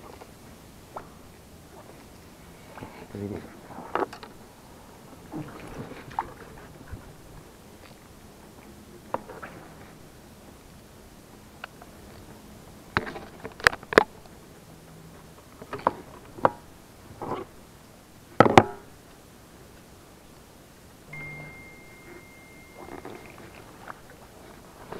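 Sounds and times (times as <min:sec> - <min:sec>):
faint high steady tone: 0:21.1 - 0:24.9.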